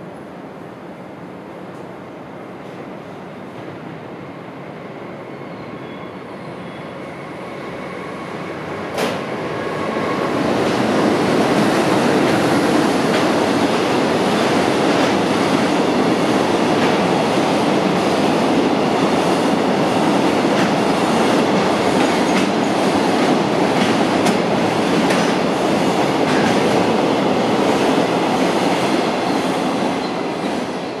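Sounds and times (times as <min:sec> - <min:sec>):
freight train wheels clattering: 0:20.5 - 0:27.0.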